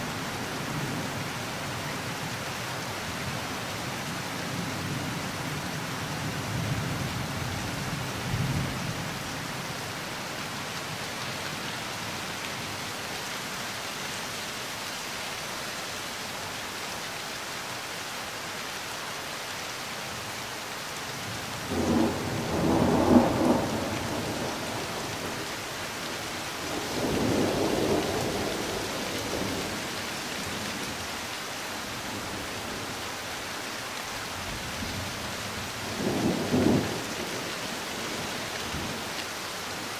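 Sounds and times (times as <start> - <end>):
steady rain: 0.0 - 39.9
thunder rumbling: 21.7 - 25.4.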